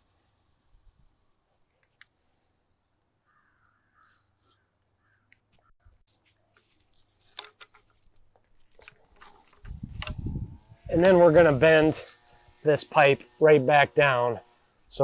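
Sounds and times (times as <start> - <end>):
plastic pipe handling clicks: 7.2 - 10.2.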